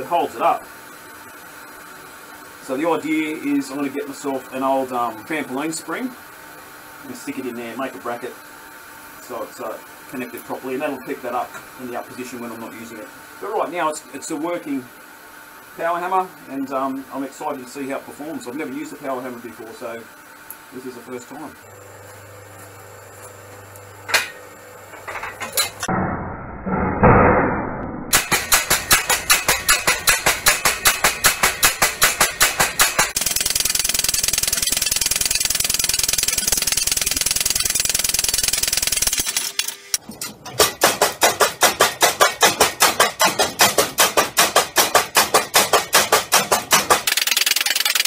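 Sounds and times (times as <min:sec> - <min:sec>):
power hammer pounding steel: 0:26.7 - 0:39.3, 0:40.4 - 0:48.0.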